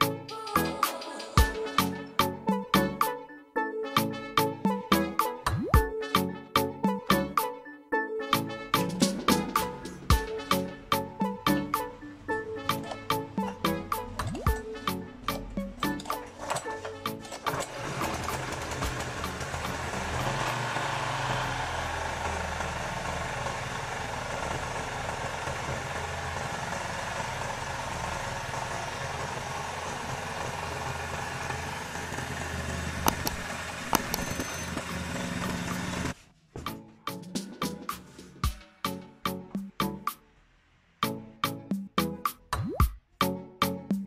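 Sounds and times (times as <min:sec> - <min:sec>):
music with a beat: 0:00.0 - 0:03.3, 0:03.9 - 0:07.7, 0:08.3 - 0:16.3, 0:36.6 - 0:40.2, 0:41.0 - 0:44.0
small engine running: 0:08.9 - 0:36.2.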